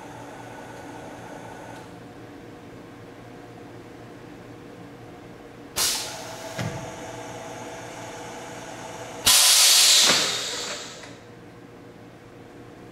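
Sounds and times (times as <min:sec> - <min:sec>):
compressed air hiss: 0:05.8 - 0:06.2, 0:09.2 - 0:11.2.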